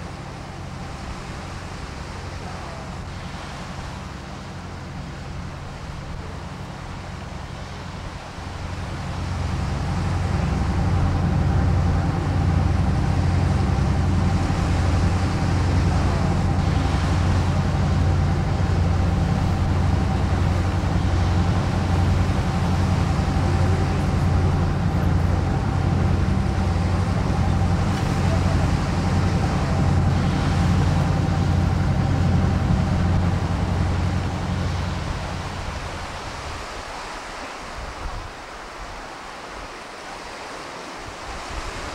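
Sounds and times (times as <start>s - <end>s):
low machine drone: 0.0s - 36.4s.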